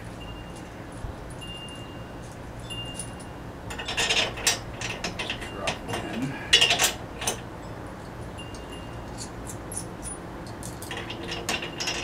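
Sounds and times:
faint high ringing tones: 0.0s - 4.2s, 5.3s - 6.5s, 7.5s - 10.3s
metal bolts clinking: 1.3s - 7.5s, 8.5s - 12.0s.

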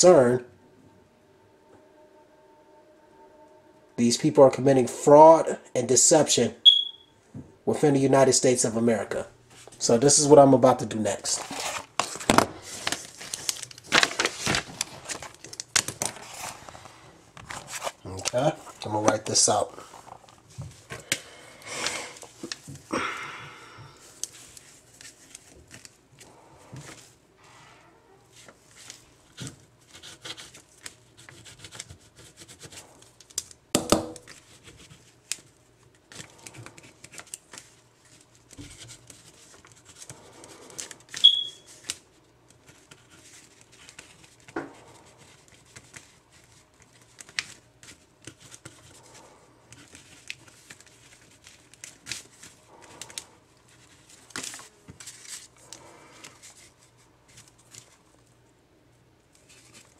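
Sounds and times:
brief high squeak: 6.7s - 7.1s, 41.2s - 41.7s
paper rustling: 11.2s - 21.1s, 34.2s - 58.3s, 59.4s - 59.9s.

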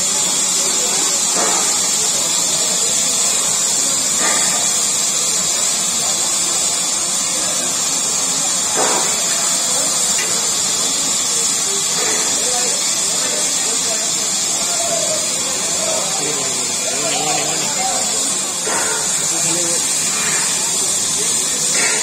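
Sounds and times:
loud steady hiss: 0.0s - 22.0s
faint voices: 5.3s - 22.0s.

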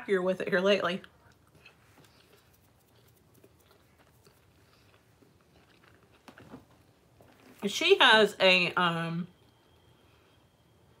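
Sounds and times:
chewing food: 1.0s - 7.6s.

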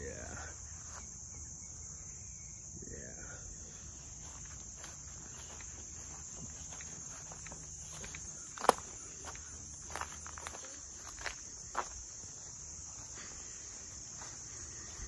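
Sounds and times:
high-pitched insect chorus: 0.0s - 15.0s
footsteps: 3.7s - 15.0s.

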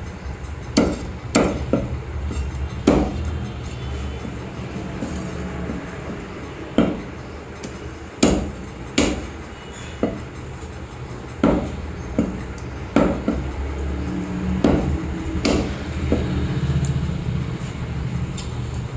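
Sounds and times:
cleaver chopping on wooden block: 0.8s - 1.9s, 2.9s - 3.2s, 8.2s - 9.2s, 11.4s - 12.4s, 13.0s - 13.4s, 14.6s - 16.3s.

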